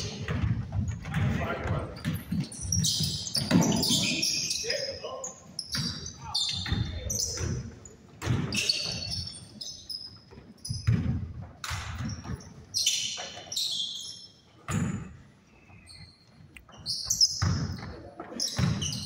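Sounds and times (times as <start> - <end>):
basketball bouncing on gym floor: 0.0 - 4.3, 5.6 - 9.4, 10.3 - 13.5, 14.6 - 15.2, 16.7 - 19.0
sneakers squeaking: 0.0 - 19.0.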